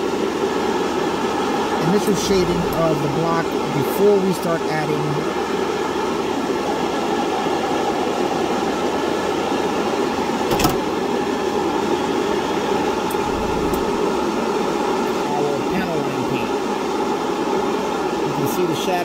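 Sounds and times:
airbrush equipment humming: 1.8 - 3.8, 13.1 - 16.1.

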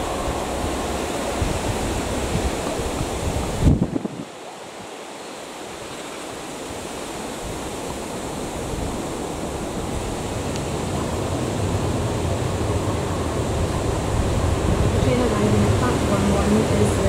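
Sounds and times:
diesel train approaching: 0.0 - 3.7, 8.3 - 17.0.

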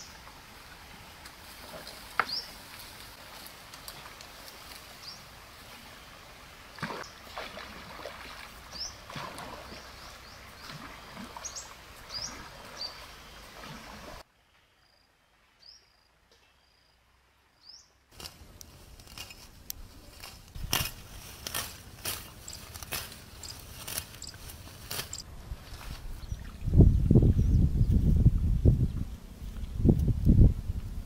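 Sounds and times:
rustles and footfalls in vegetation: 0.0 - 6.0, 18.1 - 26.5.

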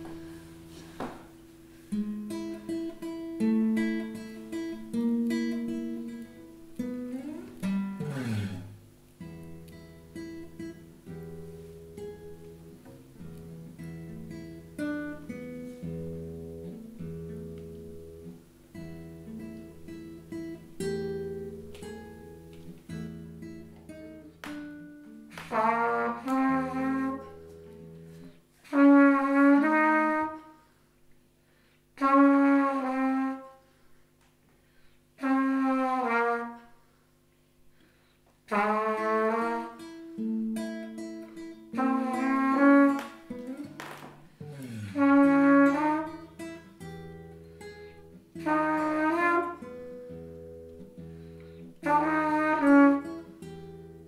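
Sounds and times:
plucked guitar notes: 2.1 - 28.2, 39.8 - 54.0
wind instrument phrases: 44.4 - 46.7.

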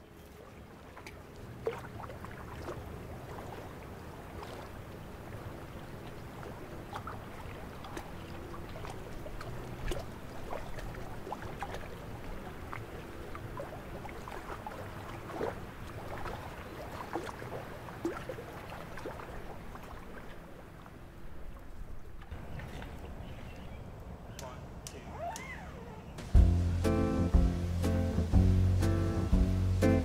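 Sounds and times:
small waves lapping: 0.0 - 30.0
steady low rumble: 26.2 - 30.0.

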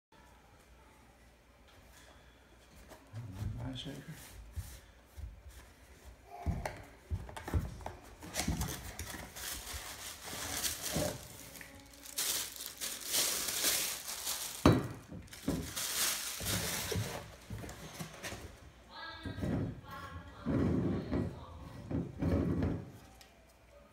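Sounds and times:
plastic bag crinkling: 8.2 - 18.5.

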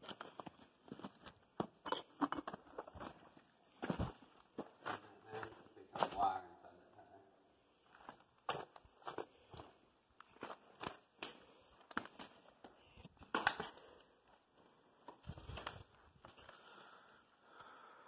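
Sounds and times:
footsteps crunching on rubble: 0.0 - 6.3, 7.8 - 12.8.

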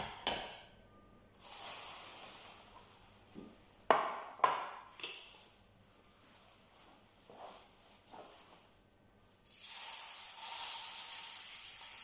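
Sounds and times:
soft hiss: 0.9 - 3.9, 5.0 - 12.0.

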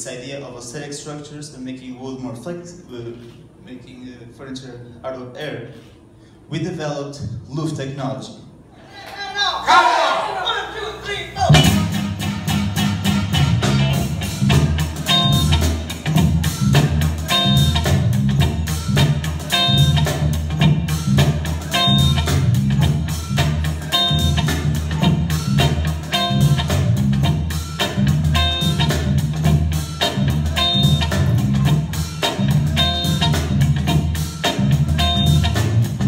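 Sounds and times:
background music with beat and bass: 11.5 - 36.0.

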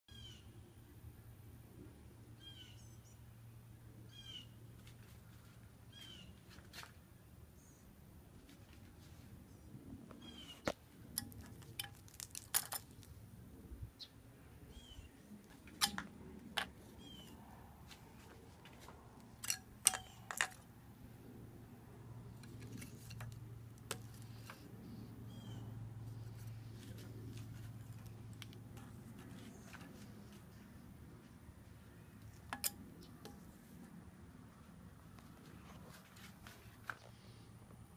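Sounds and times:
clicks and knocks of handling: 10.6 - 13.2, 18.7 - 20.7.

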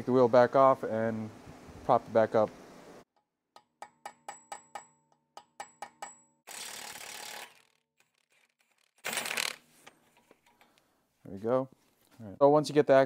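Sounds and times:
ratchet clicking: 5.6 - 9.6
impact wrench running: 6.5 - 9.7.

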